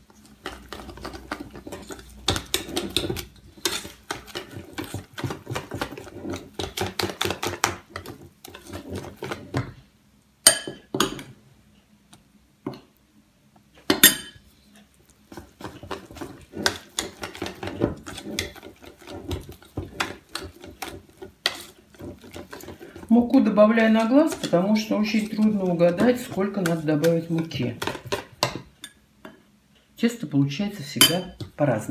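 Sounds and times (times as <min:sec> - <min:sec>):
whisk beating batter in metal bowl: 0:00.0 - 0:09.7, 0:15.3 - 0:28.8.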